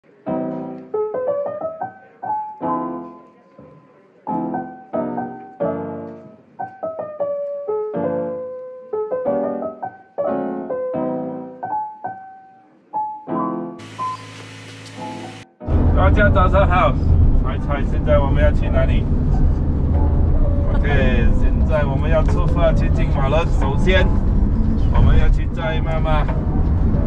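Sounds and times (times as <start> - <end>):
piano music: 0.0 - 27.0
steady hiss: 13.8 - 15.4.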